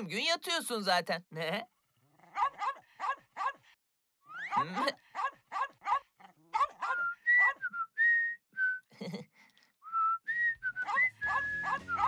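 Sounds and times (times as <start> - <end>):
small dog barking: 2.3 - 3.7, 4.5 - 7.6, 10.8 - 12.0
boy whistling a tune: 6.9 - 8.9, 9.8 - 12.0
background music: 11.0 - 12.0.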